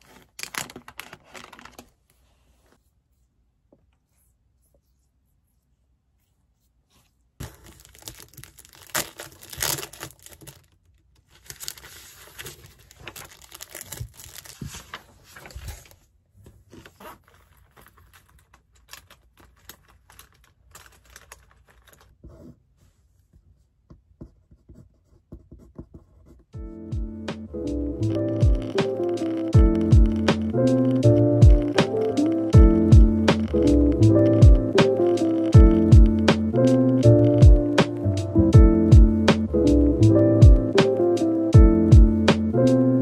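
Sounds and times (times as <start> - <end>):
plastic sheet and papers rustling: 0.0 - 2.0, 7.4 - 22.3.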